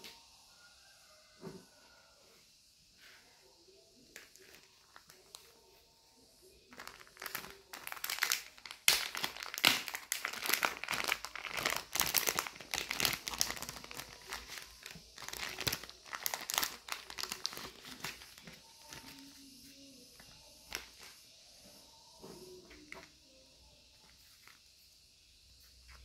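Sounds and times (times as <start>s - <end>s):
paper and plastic crinkling: 6.7s - 19.5s, 20.2s - 21.2s.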